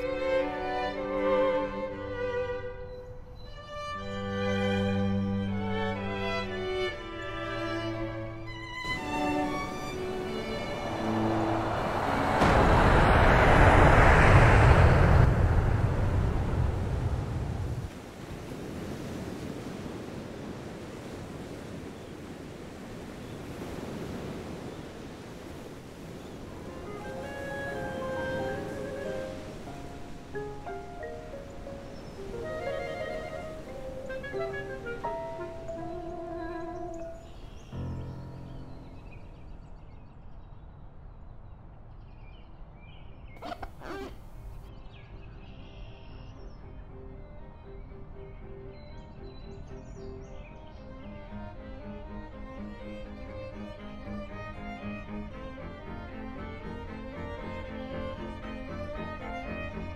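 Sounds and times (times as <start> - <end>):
soft rushing ambience: 8.8 - 18.2, 23.6 - 40.7
loud burst of sweeping noise: 9.8 - 17.8
loud low rumble: 10.5 - 17.9
small birds chirping: 35.0 - 46.7.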